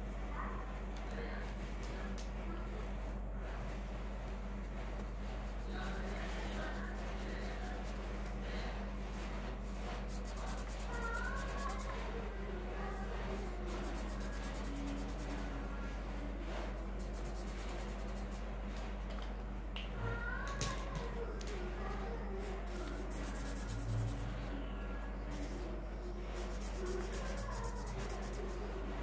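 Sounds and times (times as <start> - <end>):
steady low hum: 0.0 - 29.0
marker pen scratching on paper: 5.5 - 8.3, 9.1 - 12.1, 13.0 - 15.6, 16.5 - 18.4, 22.4 - 24.5, 25.3 - 28.6.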